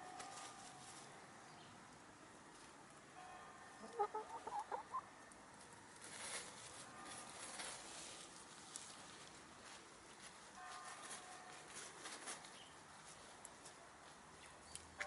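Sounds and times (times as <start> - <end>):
hens rustling and pecking: 0.0 - 1.3, 1.9 - 3.0, 3.7 - 15.0
soft hen cluck: 3.8 - 5.1.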